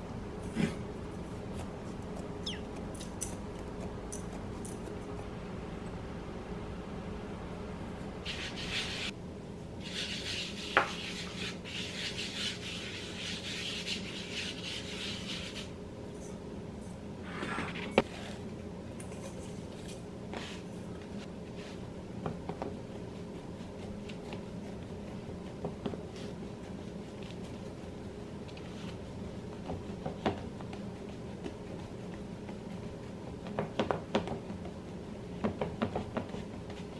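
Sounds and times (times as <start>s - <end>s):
hand rubbing flour on board: 9.8s - 15.8s.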